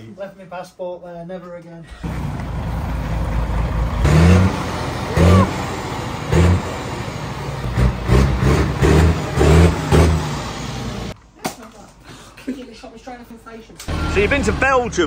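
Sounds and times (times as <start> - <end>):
diesel truck engine revving: 1.9 - 11.2, 13.9 - 15.0.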